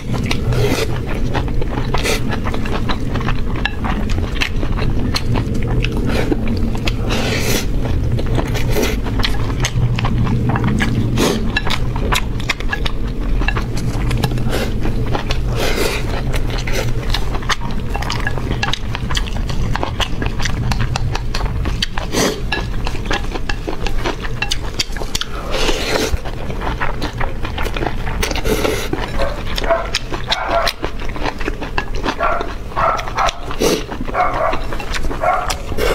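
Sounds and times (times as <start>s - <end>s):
chewing: 0.0s - 35.9s
steady low hum: 0.0s - 35.9s
chopsticks and spoons clinking on bowls: 8.4s - 20.8s, 22.4s - 26.2s, 28.9s - 35.9s.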